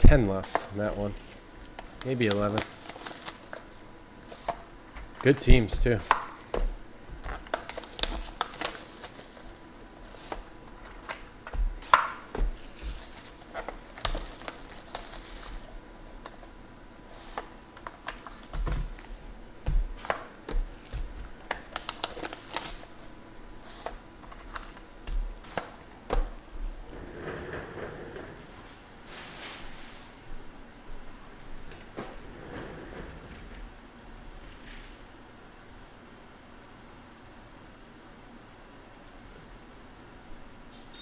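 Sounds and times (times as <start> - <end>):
plastic wrap rustling: 0.4 - 6.1, 7.1 - 26.9.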